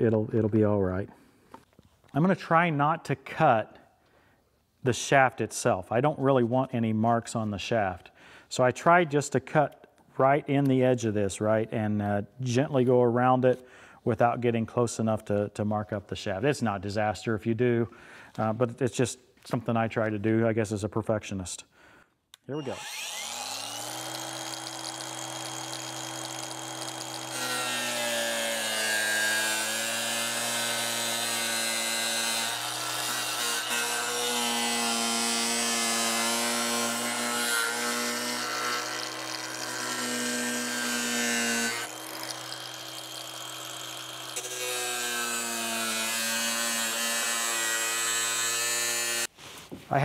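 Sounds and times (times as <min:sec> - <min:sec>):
angle grinder cutting plastic: 0:22.6 - 0:49.3.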